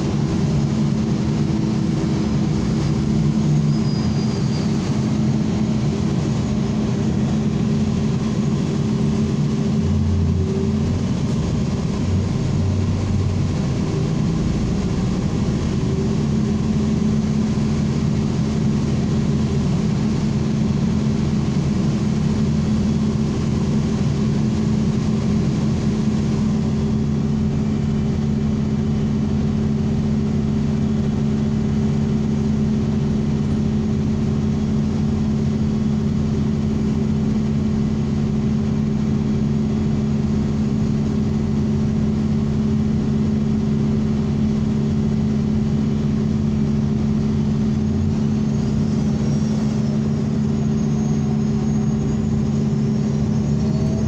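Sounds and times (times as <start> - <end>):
road noise rushing: 0.0 - 16.2
bus engine drone: 0.0 - 54.0.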